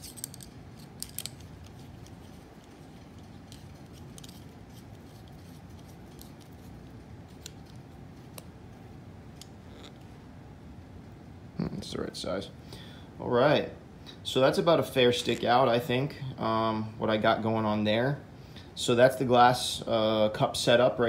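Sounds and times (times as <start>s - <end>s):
sharp clicks of small parts: 0.0s - 4.4s
steady low hum: 0.0s - 21.0s.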